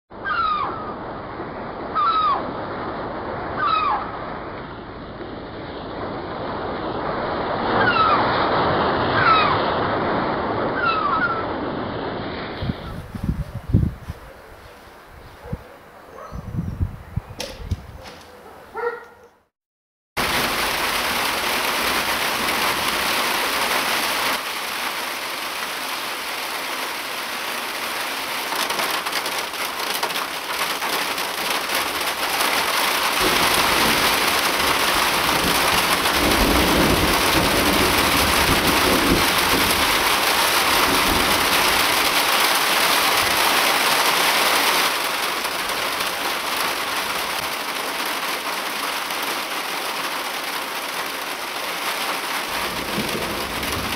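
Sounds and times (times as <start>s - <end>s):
heavy rain falling: 0.2s - 14.9s, 20.2s - 53.9s
thunder rumbling: 30.3s - 43.6s, 52.4s - 53.9s.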